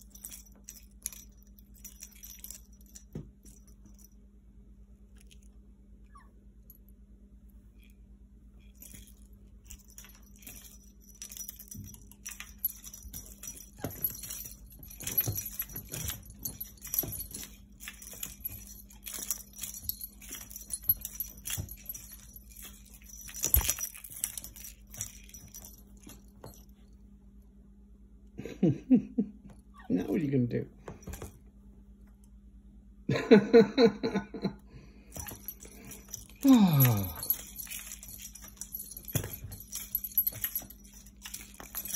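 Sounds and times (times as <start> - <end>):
light metallic jingling: 0.0 - 4.2, 8.6 - 26.9, 35.1 - 41.9
paws knocking and rustling on couch: 8.8 - 26.9, 30.8 - 32.2, 37.0 - 41.9.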